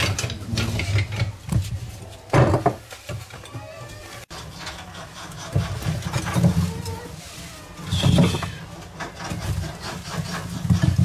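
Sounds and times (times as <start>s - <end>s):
rats gnawing bamboo: 4.3s - 11.0s.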